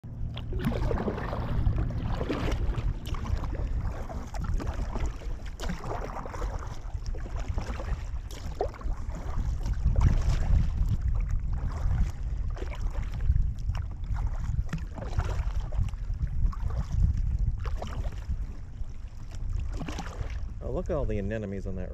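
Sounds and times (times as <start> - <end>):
wind buffeting microphone: 0.0 - 21.9
paddle splashing in water: 0.1 - 20.7.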